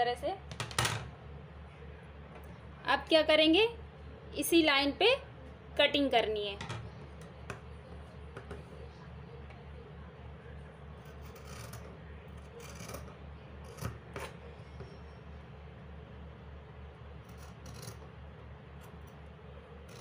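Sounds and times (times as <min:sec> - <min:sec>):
scissors snipping fabric: 0:11.0 - 0:14.4, 0:17.3 - 0:18.0.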